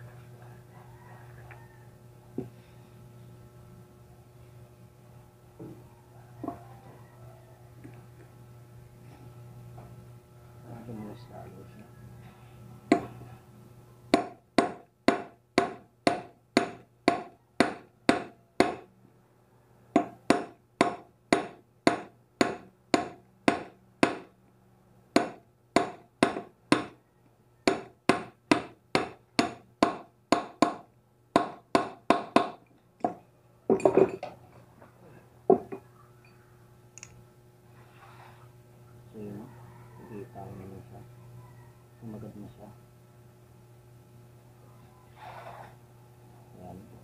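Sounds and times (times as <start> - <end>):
hammer striking steel pipe: 12.9 - 13.2, 14.1 - 18.9, 20.0 - 24.3, 25.2 - 27.0, 27.7 - 33.2.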